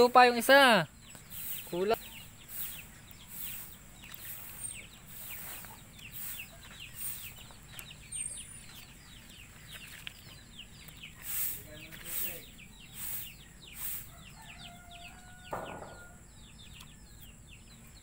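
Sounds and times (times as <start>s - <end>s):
faint chicken chirps: 11.2s - 16.2s.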